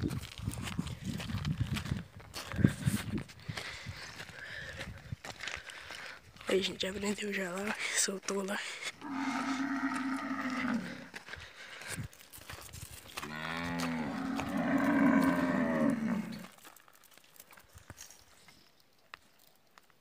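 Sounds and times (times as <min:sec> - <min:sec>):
cows mooing: 0:09.0 - 0:11.1, 0:13.2 - 0:16.5.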